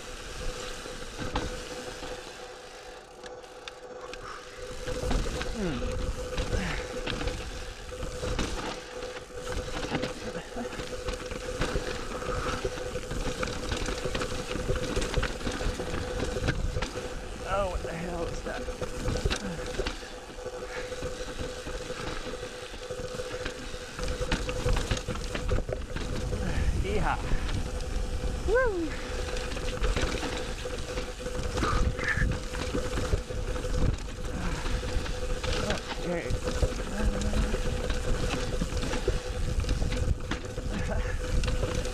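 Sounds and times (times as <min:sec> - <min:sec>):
bike rattling and clicking: 0:00.0 - 0:41.9
faint steady whine: 0:00.0 - 0:41.9
tyres rolling on rock: 0:00.0 - 0:41.9
wind rumble on microphone: 0:24.3 - 0:41.9.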